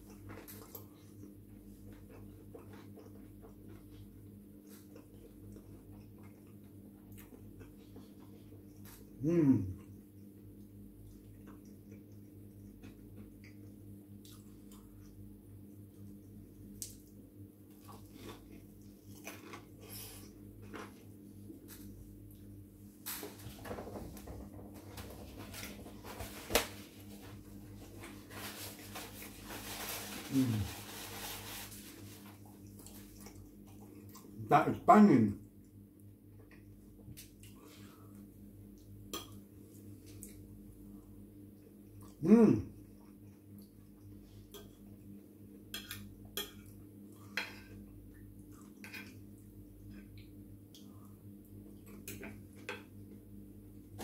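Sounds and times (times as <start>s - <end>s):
steady low hum: 0.0s - 54.0s
paper towel rustling: 25.0s - 33.1s.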